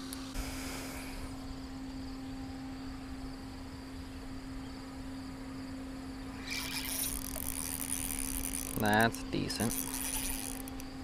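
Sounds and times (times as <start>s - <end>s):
constant low hum: 0.0s - 11.0s
insects chirping: 0.1s - 11.0s
fishing reel whirring: 6.3s - 11.0s.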